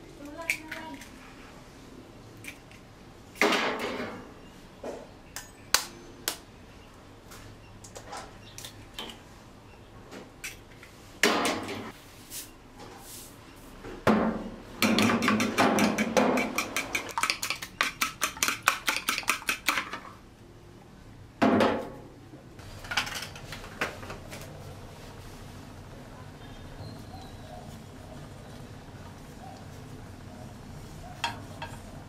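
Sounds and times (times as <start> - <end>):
fork beating eggs in bowl: 14.9 - 19.9.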